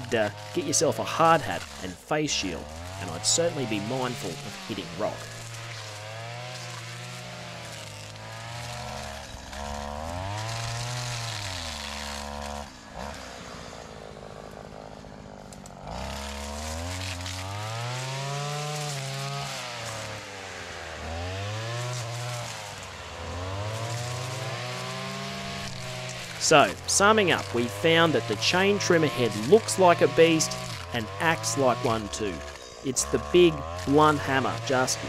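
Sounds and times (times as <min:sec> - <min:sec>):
brush cutter engine revving: 0:00.0 - 0:35.0.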